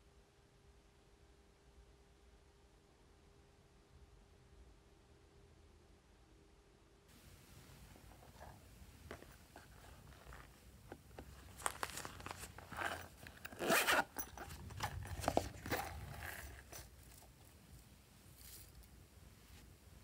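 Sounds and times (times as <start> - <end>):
zipper being pulled open: 8.0 - 18.9.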